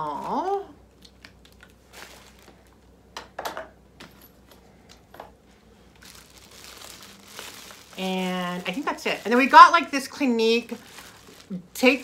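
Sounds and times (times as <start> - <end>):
plastic bag crinkling: 0.1 - 2.8, 5.9 - 12.0.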